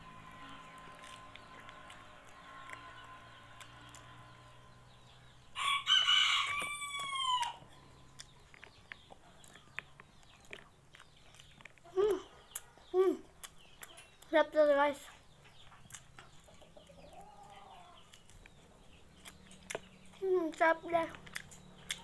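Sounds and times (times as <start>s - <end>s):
rooster crowing: 5.6s - 7.6s.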